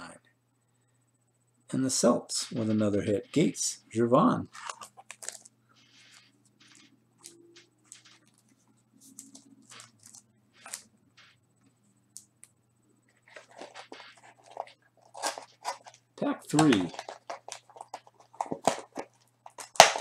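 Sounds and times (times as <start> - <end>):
card wrappers rustling: 4.4 - 11.3, 13.1 - 20.0.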